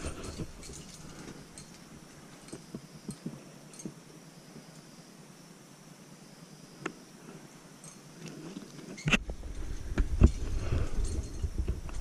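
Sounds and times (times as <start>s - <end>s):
carabiners clinking together: 0.0s - 4.1s, 7.8s - 8.2s, 10.2s - 12.0s.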